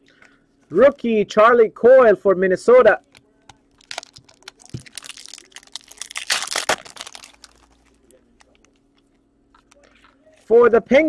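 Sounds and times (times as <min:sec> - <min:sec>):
wrapper crinkling: 0:03.0 - 0:10.4.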